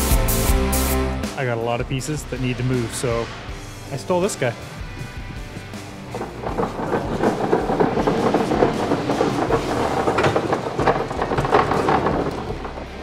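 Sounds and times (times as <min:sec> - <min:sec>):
pallet jack wheels clattering: 0:01.4 - 0:13.0
plywood pieces rattling: 0:04.4 - 0:13.0.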